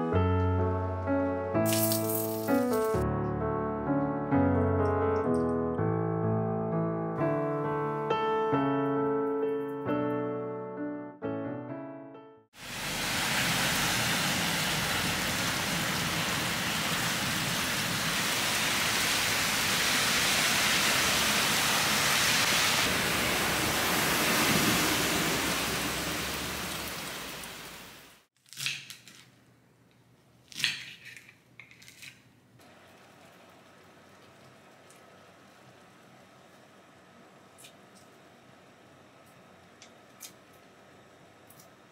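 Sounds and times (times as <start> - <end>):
heavy rain: 12.6 - 28.3.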